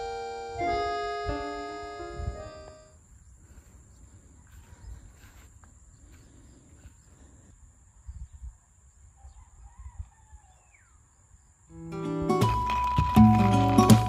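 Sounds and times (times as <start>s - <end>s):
wind gusts on microphone: 0.7s - 2.7s, 7.4s - 10.6s.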